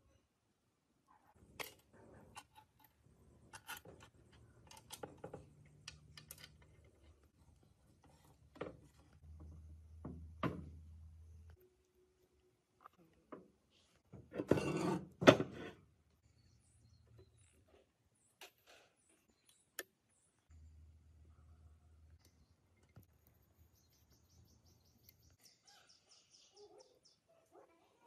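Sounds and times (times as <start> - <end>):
clicks and knocks of metal parts: 1.5 - 7.2.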